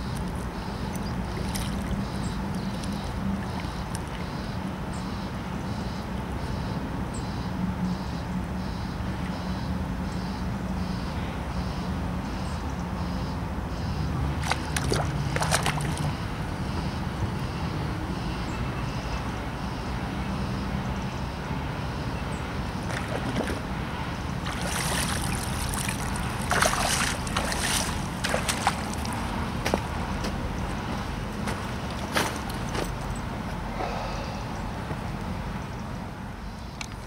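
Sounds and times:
water sloshing and splashing: 0.0s - 4.6s, 14.3s - 16.3s, 22.6s - 33.1s.

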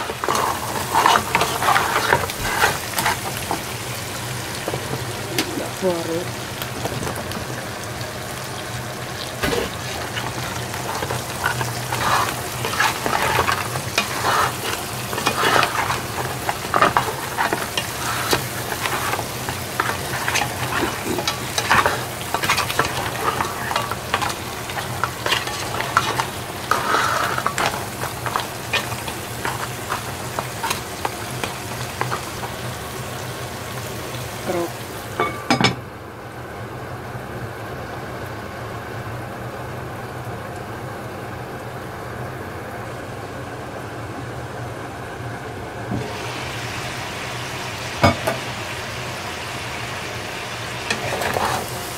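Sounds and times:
food sizzling in a pot: 0.0s - 35.8s, 44.7s - 51.9s
spatula scraping and knocking pot: 9.4s - 32.5s.

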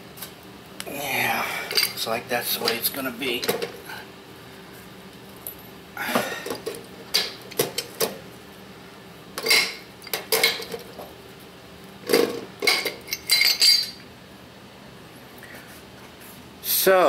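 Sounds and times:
pipe wrench clinking and scraping metal: 12.6s - 14.0s.

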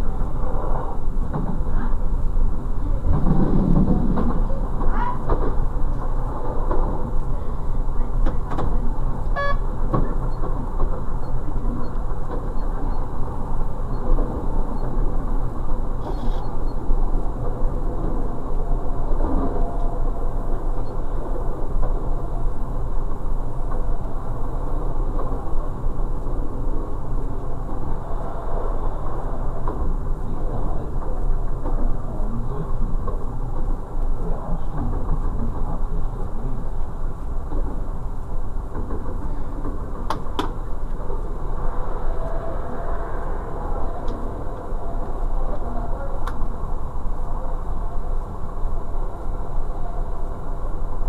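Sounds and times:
wheels rumbling on rails: 0.0s - 51.0s
diesel engine drone: 39.3s - 51.0s.

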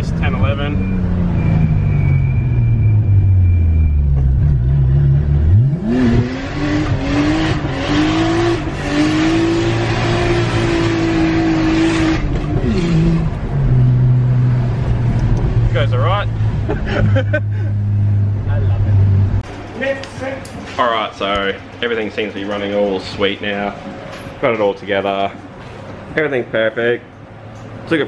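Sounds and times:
car engine revving hard: 4.4s - 18.4s.

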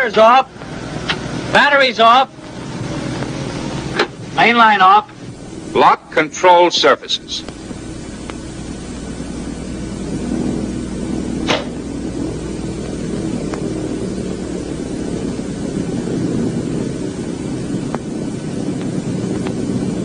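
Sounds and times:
low rumbling noise: 0.0s - 20.0s
sharp click: 11.4s - 11.8s.

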